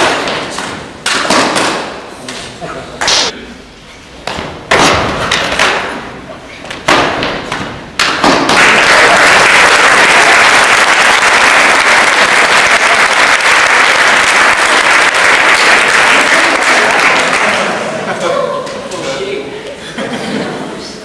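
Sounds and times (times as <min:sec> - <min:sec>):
large audience applauding: 0:08.5 - 0:18.0.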